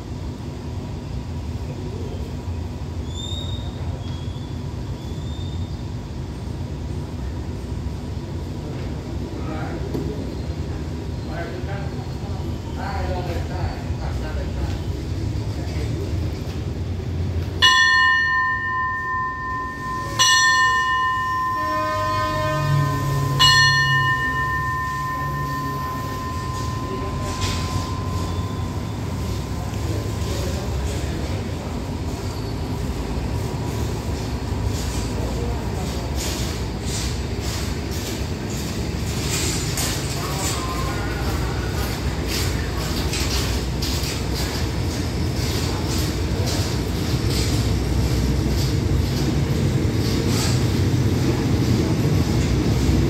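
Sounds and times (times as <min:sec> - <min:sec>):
diesel train idling rumble: 0:00.0 - 0:53.0
faint high whistling tones: 0:03.0 - 0:05.9, 0:18.4 - 0:32.8
station bell ringing: 0:17.4 - 0:53.0.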